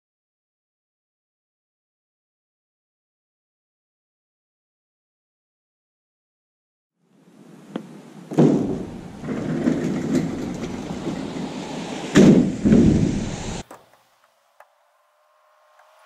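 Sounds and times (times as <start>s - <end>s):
metal door banging: 8.3s - 13.6s
metal ramp door rattling: 8.3s - 13.6s.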